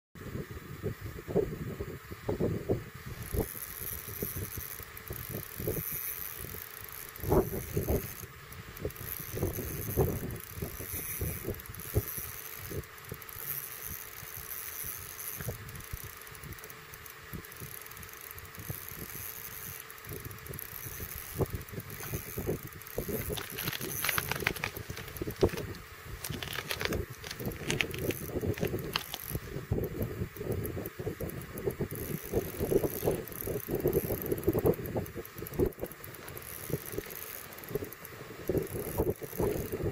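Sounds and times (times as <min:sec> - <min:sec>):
gear clicking and rattling: 0:03.2 - 0:39.9
wind buffeting microphone: 0:20.1 - 0:37.1.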